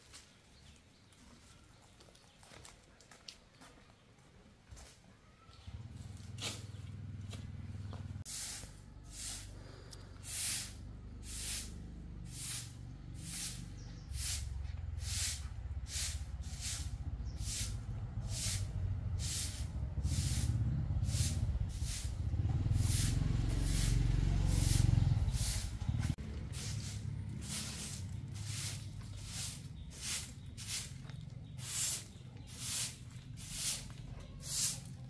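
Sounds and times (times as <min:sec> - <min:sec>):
broom sweeping concrete: 0:06.0 - 0:06.8, 0:08.2 - 0:35.0
low rumble: 0:14.7 - 0:30.0.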